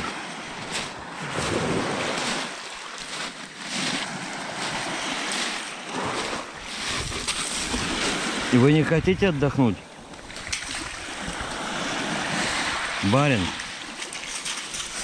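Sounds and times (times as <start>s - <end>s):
waves washing over pebbles: 0.0s - 15.0s.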